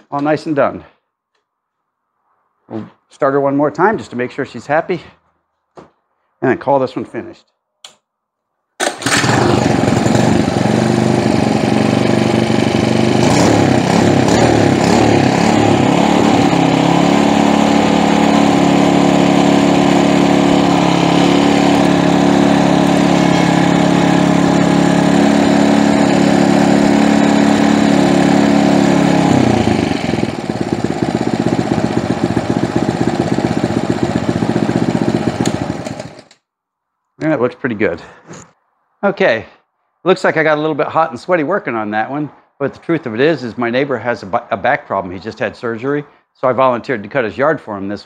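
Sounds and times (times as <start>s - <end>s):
small engine running: 8.9s - 36.4s.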